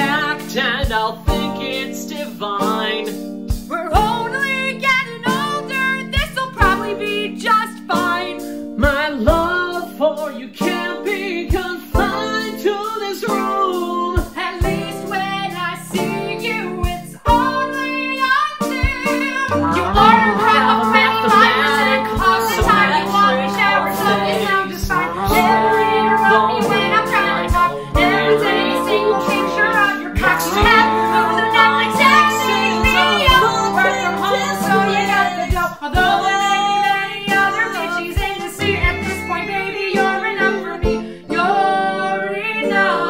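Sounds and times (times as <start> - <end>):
man singing: 0.0 - 3.2, 8.8 - 14.2, 19.5 - 36.2
instrumental backing with low chords: 0.0 - 4.3, 6.0 - 42.1
woman singing: 3.7 - 43.0
strummed guitar: 19.5 - 35.2.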